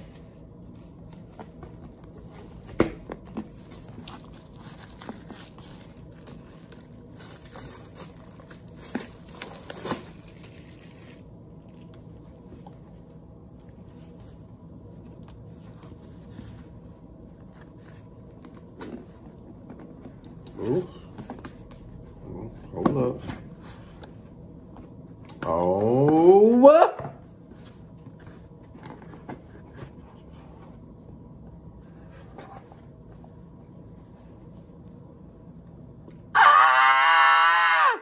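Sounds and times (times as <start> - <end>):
plastic shrink-wrap tearing: 4.0 - 11.8.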